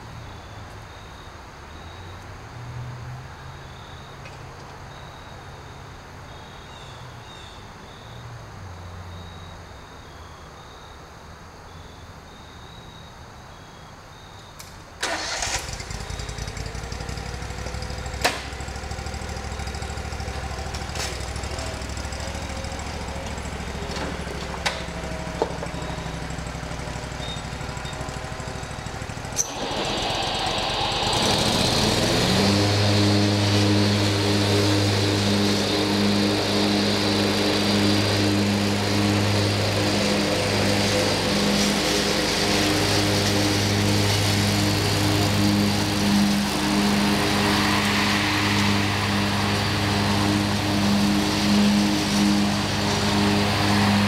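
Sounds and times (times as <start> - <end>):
lawn mower engine running: 15.0 - 54.0.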